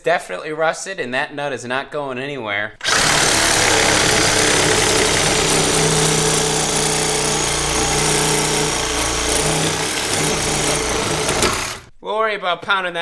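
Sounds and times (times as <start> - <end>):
reciprocating saw cutting steel: 2.8 - 11.9.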